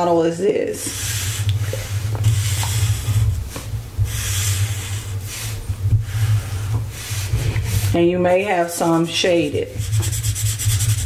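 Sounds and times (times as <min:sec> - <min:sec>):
steady low hum: 0:00.0 - 0:11.0
marker scratching on paper: 0:09.6 - 0:11.0.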